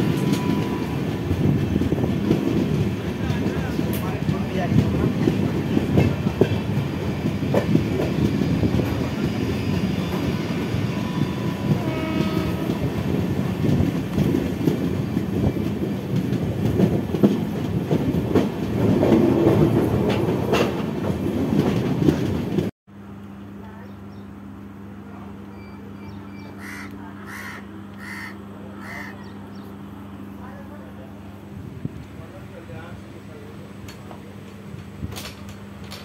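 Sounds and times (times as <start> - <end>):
train wheels clickety-clack: 0.0 - 22.7, 33.8 - 36.0
passing suburban train: 0.0 - 36.0.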